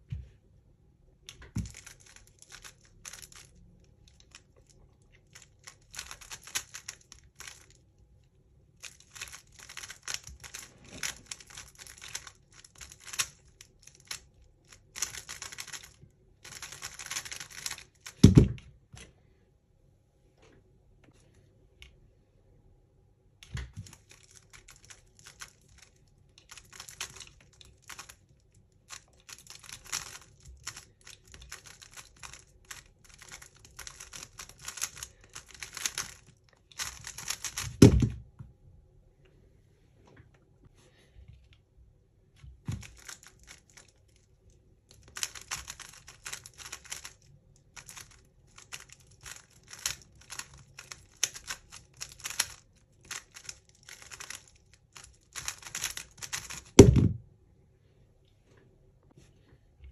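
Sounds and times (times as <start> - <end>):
speed cube clicking and rattling: 1.4 - 8.0, 8.7 - 18.5, 23.6 - 38.0, 42.8 - 56.9
loud thump: 56.8 - 57.2.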